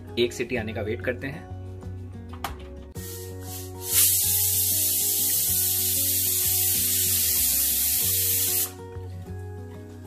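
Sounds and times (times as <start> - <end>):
pressure cooker whistle hissing: 3.2 - 8.8.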